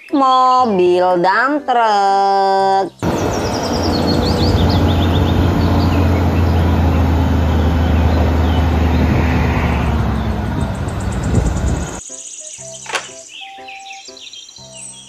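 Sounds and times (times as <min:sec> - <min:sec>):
birds chirping faintly: 0:02.8 - 0:15.0
truck diesel engine humming: 0:03.0 - 0:12.0.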